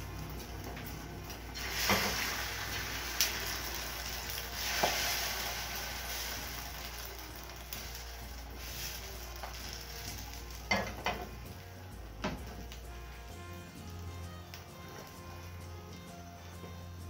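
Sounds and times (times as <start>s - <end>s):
eggs sizzling in a pan: 0.0s - 16.8s
pan knocking on stove: 10.7s - 11.3s.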